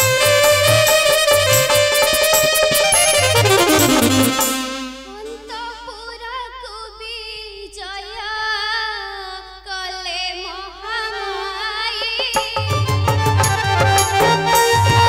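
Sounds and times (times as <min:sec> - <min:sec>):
drums: 0:00.0 - 0:05.2, 0:12.0 - 0:15.0
instruments playing: 0:00.0 - 0:05.7, 0:13.0 - 0:15.0
person singing: 0:02.0 - 0:08.0.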